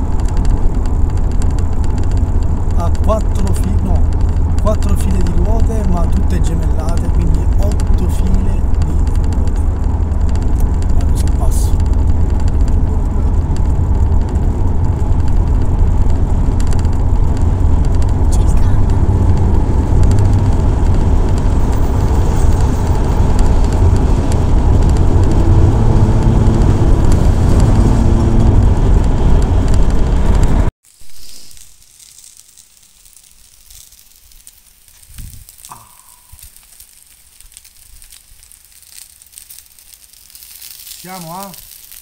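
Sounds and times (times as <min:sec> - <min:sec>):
car road and engine noise: 0:00.0 - 0:30.8
sausages sizzling on a barbecue: 0:30.8 - 0:42.0.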